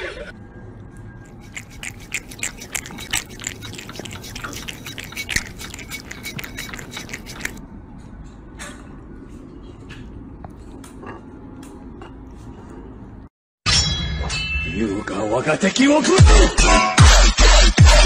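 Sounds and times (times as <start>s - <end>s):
kitten licking and smacking: 1.3s - 7.6s.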